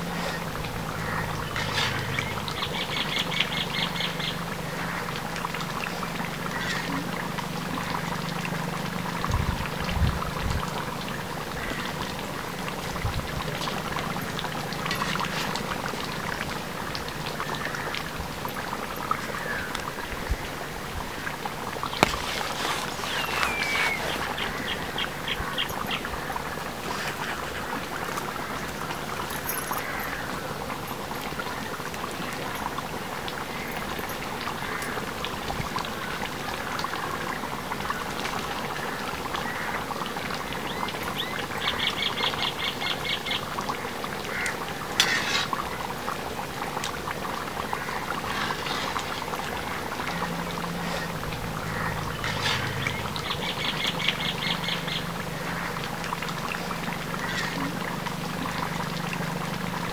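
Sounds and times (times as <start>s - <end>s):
curry bubbling and sizzling: 0.0s - 59.9s
metal ladle scraping pan: 1.4s - 2.4s, 44.8s - 46.0s, 47.9s - 49.6s, 51.8s - 53.0s.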